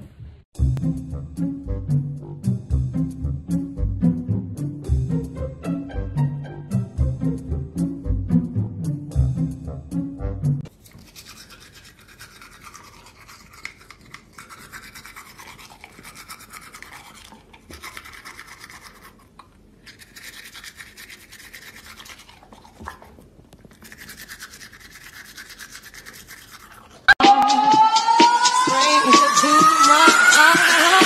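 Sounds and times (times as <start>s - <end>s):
toothbrush scrubbing teeth: 10.7s - 27.2s
loud upward-sliding tone: 27.2s - 31.0s.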